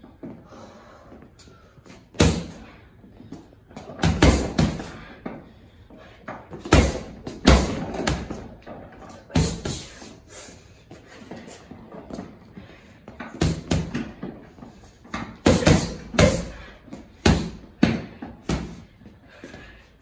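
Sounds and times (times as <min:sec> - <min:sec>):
boxing gloves punching heavy bag: 0:02.1 - 0:02.7, 0:03.8 - 0:05.3, 0:06.5 - 0:10.1, 0:13.2 - 0:14.4, 0:15.1 - 0:18.9.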